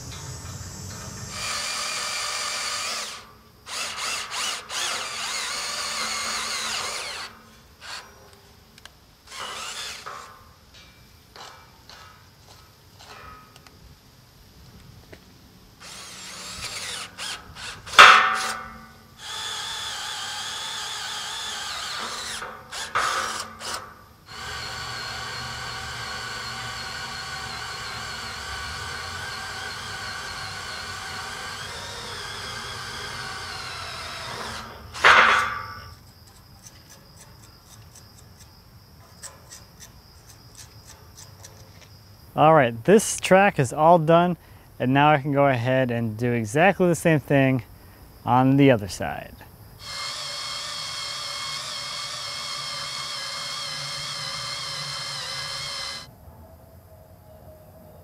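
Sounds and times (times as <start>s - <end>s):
cordless drill boring into steel: 1.3s - 8.1s, 9.3s - 10.4s, 15.8s - 36.0s, 49.8s - 56.1s.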